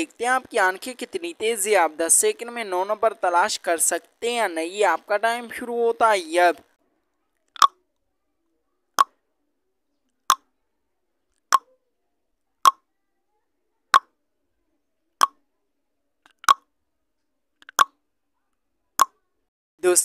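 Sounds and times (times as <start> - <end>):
timer ticking: 17.6 - 17.9.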